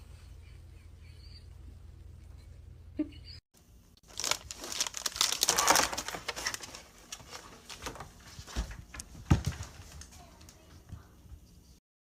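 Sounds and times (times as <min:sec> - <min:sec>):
cat rustling among cans: 0:04.1 - 0:10.7.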